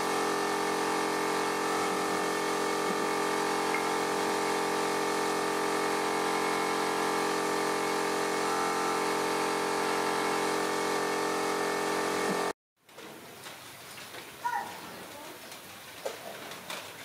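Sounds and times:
motor humming: 0.0 - 12.6.

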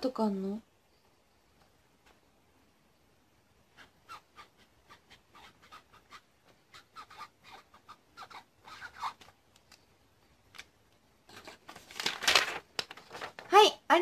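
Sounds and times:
paper rustling: 11.3 - 13.6.

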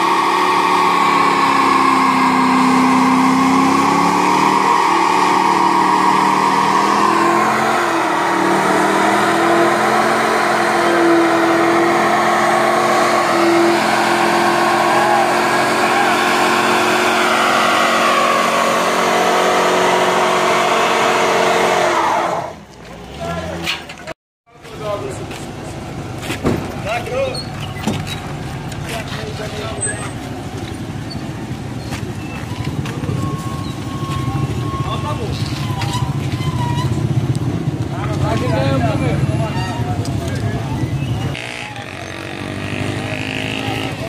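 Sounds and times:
car engine at high revs: 0.0 - 22.6
tyre squealing on pavement: 0.0 - 43.0.

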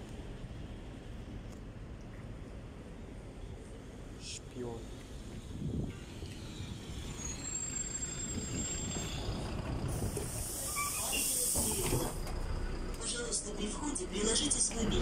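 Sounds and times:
bus engine running: 0.0 - 15.0
compressed air hiss: 9.9 - 12.2.

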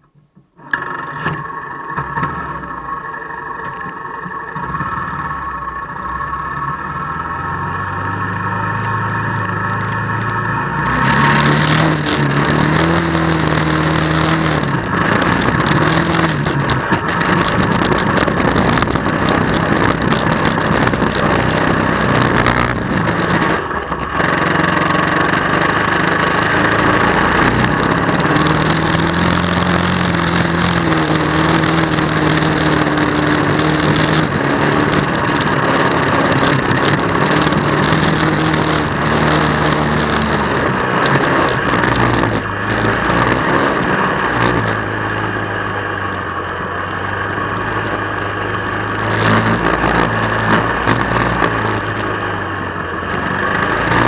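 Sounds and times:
atv engine running under load: 0.0 - 54.0
riding rattle: 0.6 - 54.0.

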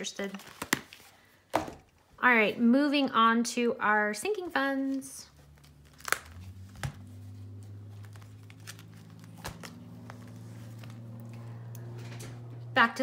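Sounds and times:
plastic envelopes crinkling: 0.0 - 1.2, 4.8 - 11.9
steady low hum: 5.2 - 13.0.

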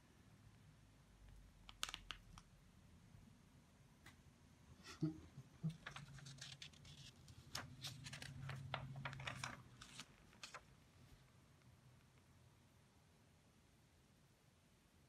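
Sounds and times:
book pages turning: 5.8 - 10.7.

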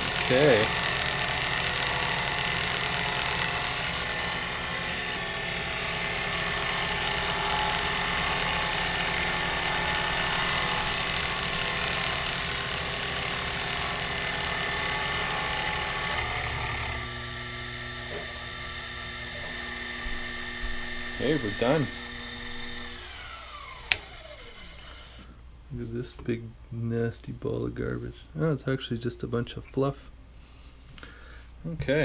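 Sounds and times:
milling machine cutting aluminum: 0.0 - 25.2.

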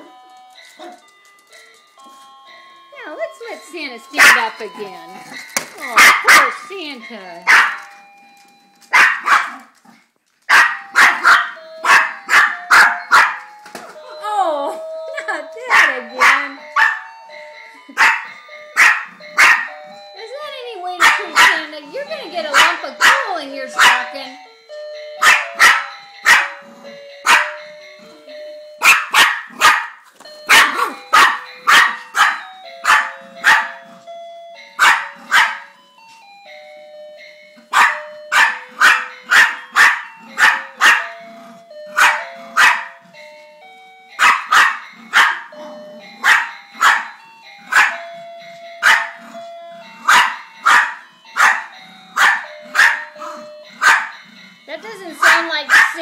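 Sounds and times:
small dog barking: 9.0 - 9.6, 10.5 - 13.4, 28.8 - 29.9, 30.5 - 33.7, 37.7 - 41.0, 42.0 - 42.9, 44.2 - 45.4, 47.7 - 48.0, 50.1 - 51.6, 53.8 - 54.1, 55.2 - 56.0
electronic jazz melody: 10.5 - 56.0.

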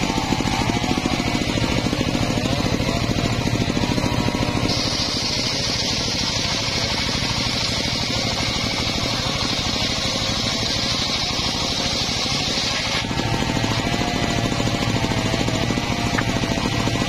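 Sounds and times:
engine low pulsing: 0.0 - 17.0
saw blade ripping wood: 0.0 - 17.0.

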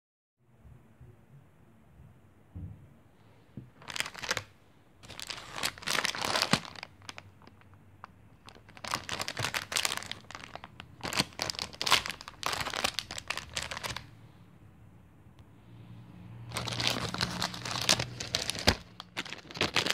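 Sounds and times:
plastic bag crinkling: 3.8 - 14.1, 16.5 - 19.9.

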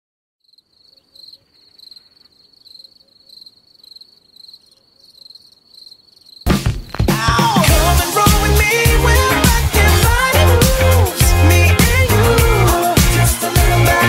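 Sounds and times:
crickets chirping: 0.4 - 7.3
loud music: 6.5 - 14.0.

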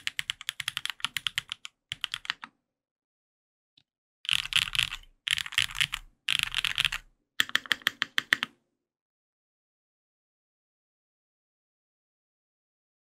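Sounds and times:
mechanical keyboard typing: 0.0 - 2.5, 4.3 - 8.5.

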